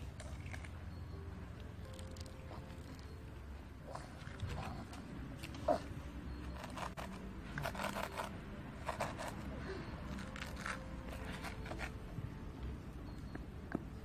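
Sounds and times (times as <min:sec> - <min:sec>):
toy shovel scraping sand: 0:06.5 - 0:09.6.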